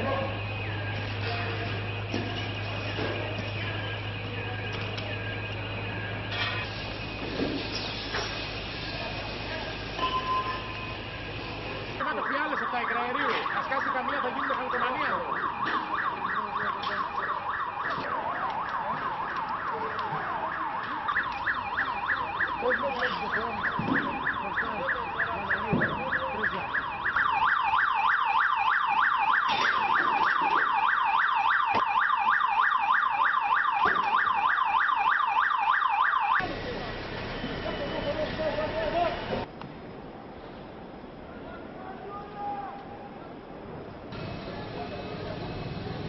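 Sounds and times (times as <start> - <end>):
electronic siren warbling: 10.0 - 39.4.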